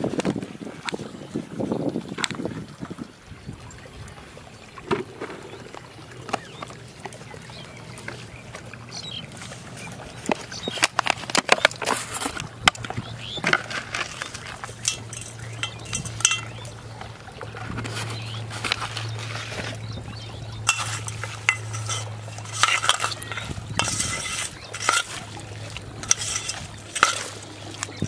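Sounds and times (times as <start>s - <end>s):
steel bowl clinks: 13.5s - 16.8s, 20.6s - 28.0s.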